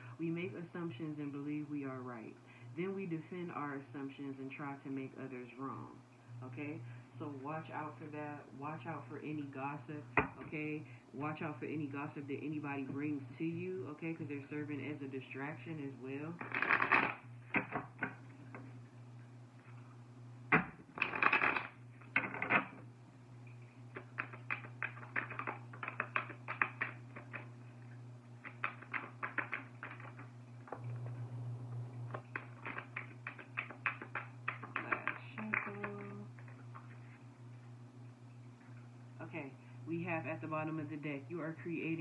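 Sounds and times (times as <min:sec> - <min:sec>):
low hum: 0:00.0 - 0:42.0
cards being shuffled: 0:16.4 - 0:18.6, 0:20.5 - 0:22.8, 0:23.9 - 0:27.6, 0:28.4 - 0:30.8, 0:32.1 - 0:37.0.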